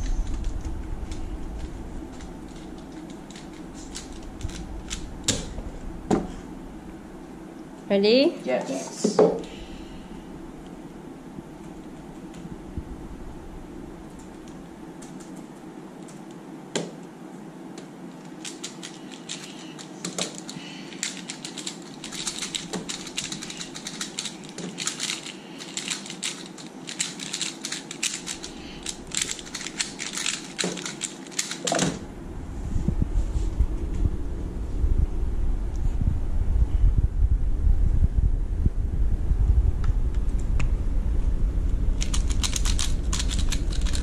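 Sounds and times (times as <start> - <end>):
plastic cube clicking: 18.4 - 31.8, 42.0 - 44.0
camera handling rumble: 42.0 - 44.0.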